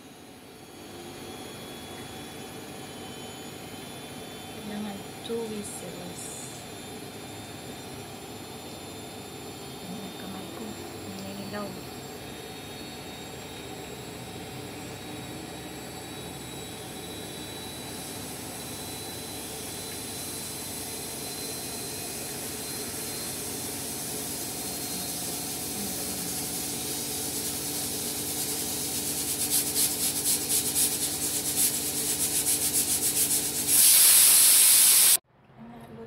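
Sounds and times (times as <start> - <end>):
pressure cooker hissing: 19.0 - 35.2
pressure cooker whistle: 33.5 - 35.2
steam puffing under whistle weight: 33.6 - 35.2.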